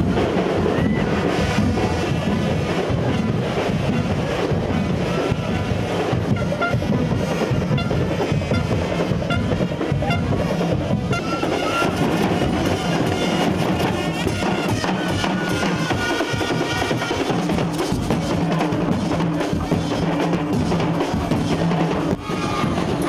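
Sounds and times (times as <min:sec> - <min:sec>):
steady drumming: 0:00.0 - 0:23.0
brass horns playing: 0:11.1 - 0:17.5.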